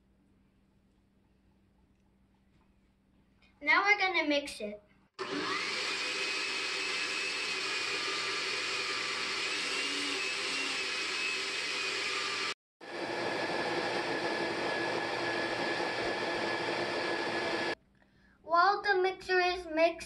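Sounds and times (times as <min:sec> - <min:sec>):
blender motor whining: 0:05.2 - 0:17.8.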